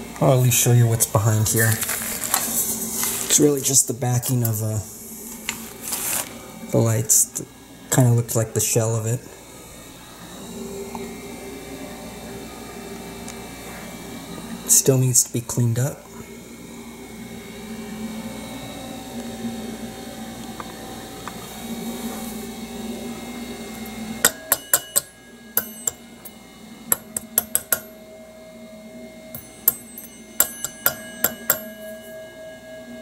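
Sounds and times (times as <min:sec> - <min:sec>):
low refrigerator hum: 0:00.0 - 0:33.0
gong bell chiming: 0:23.6 - 0:33.0.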